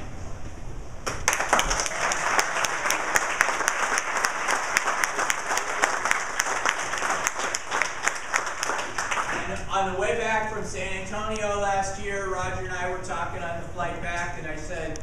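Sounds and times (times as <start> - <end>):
audience applauding: 1.1 - 9.7.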